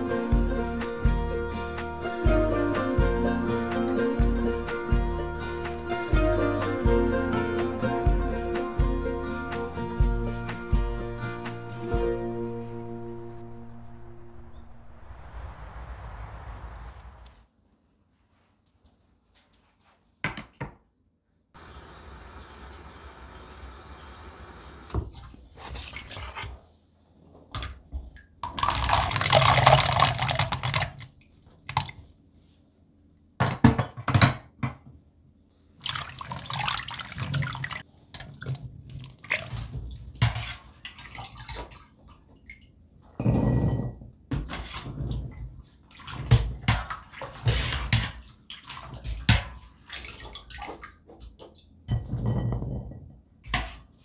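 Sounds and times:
water splashing in a sink: 0:27.6 - 0:32.1, 0:35.8 - 0:42.7, 0:44.5 - 0:51.7
water dripping: 0:28.4 - 0:32.0.

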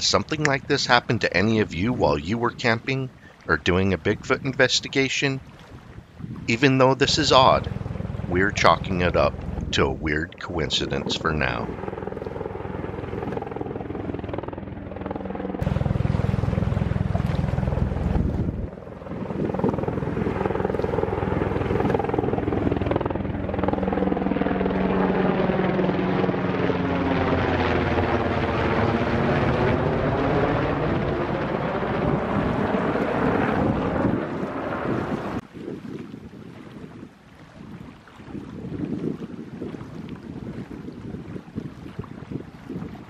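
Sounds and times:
helicopter rotor chop and turbine: 0:00.0 - 0:02.8, 0:06.3 - 0:35.4.

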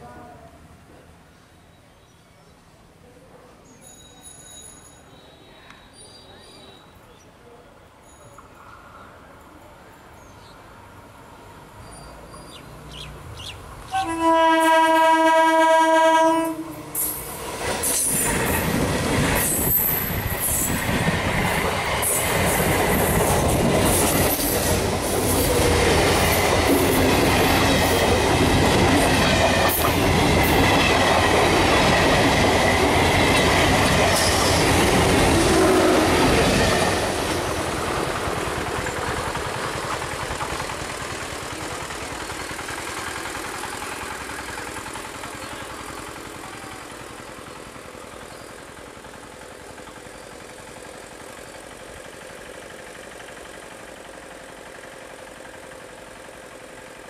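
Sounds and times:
train rumble: 0:11.1 - 0:57.0
train horn blast: 0:13.9 - 0:16.8, 0:35.4 - 0:36.2
wheels clacking over rail joints: 0:17.0 - 0:57.0.

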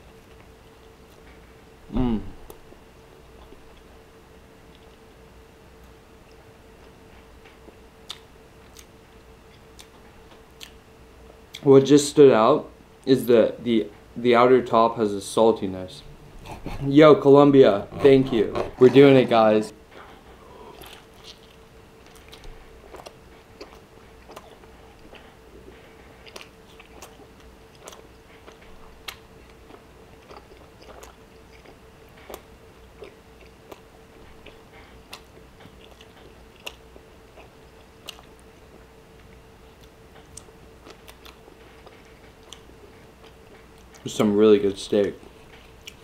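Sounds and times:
faint steady hum: 0:00.0 - 0:46.0
person chewing steak: 0:05.8 - 0:11.6, 0:16.4 - 0:16.9, 0:19.9 - 0:44.1, 0:45.0 - 0:46.0.

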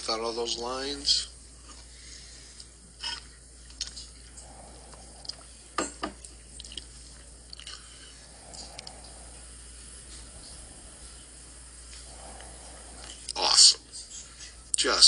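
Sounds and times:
steady low hum: 0:00.0 - 0:15.0
faint clicks and ticks: 0:08.5 - 0:09.4.

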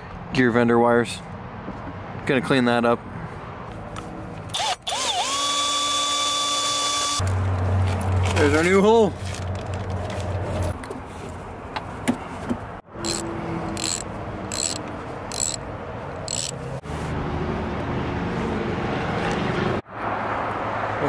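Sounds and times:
socket ratchet clicking: 0:13.0 - 0:15.6, 0:16.2 - 0:16.6.

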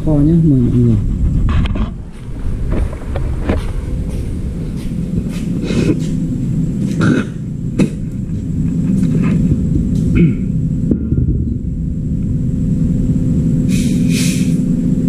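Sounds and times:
low rumble: 0:00.0 - 0:15.0.

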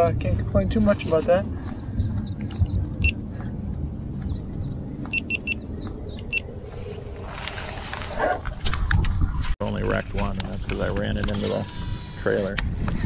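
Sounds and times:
steady low rumble: 0:00.0 - 0:12.0
short electronic camera beeps: 0:05.1 - 0:05.6.

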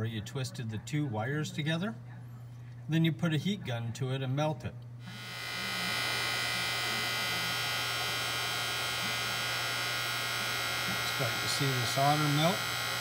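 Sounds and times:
heat gun fan humming: 0:05.0 - 0:13.0.

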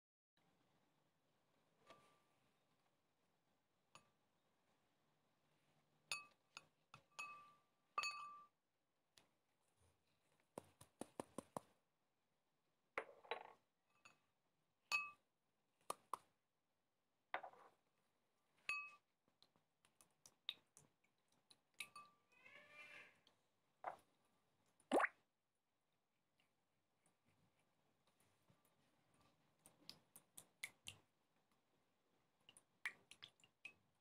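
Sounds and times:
glass bowls clinking: 0:07.2 - 0:08.5.

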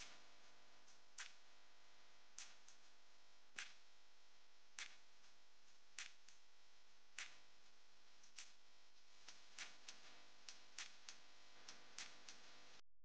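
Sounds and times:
faint sharp ticks: 0:09.6 - 0:12.4.

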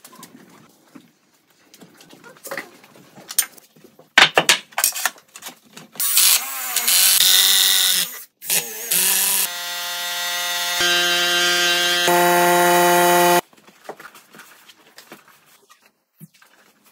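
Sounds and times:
hammer drill boring into concrete: 0:06.0 - 0:13.4.

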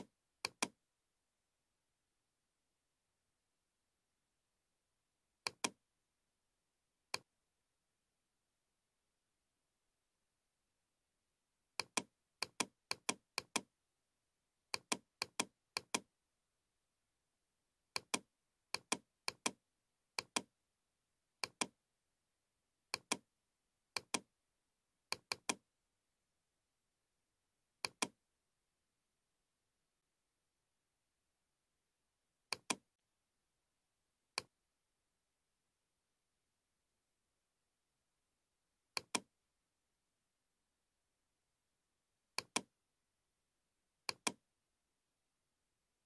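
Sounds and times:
computer mouse clicking: 0:00.0 - 0:00.8, 0:05.4 - 0:05.8, 0:11.8 - 0:13.7, 0:14.7 - 0:16.1, 0:17.9 - 0:19.6, 0:20.2 - 0:20.5, 0:21.4 - 0:21.8, 0:22.9 - 0:23.2, 0:24.0 - 0:24.3, 0:25.1 - 0:25.6, 0:27.8 - 0:28.2, 0:32.5 - 0:32.8, 0:39.0 - 0:39.3, 0:42.4 - 0:42.7, 0:44.1 - 0:44.4.

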